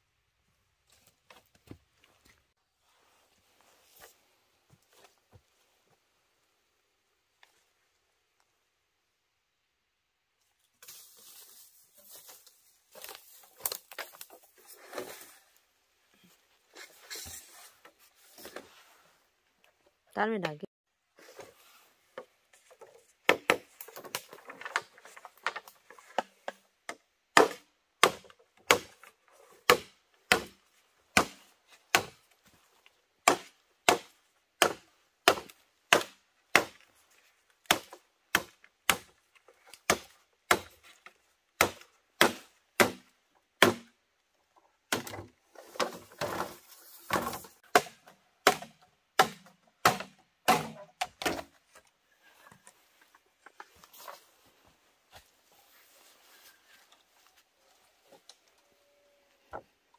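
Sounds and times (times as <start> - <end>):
chopping wood: 23.3 - 24.3, 27.4 - 29.0, 29.6 - 32.2, 33.2 - 36.8, 37.6 - 39.2, 39.8 - 40.8, 41.6 - 44.0, 44.9 - 46.5, 47.1 - 51.5.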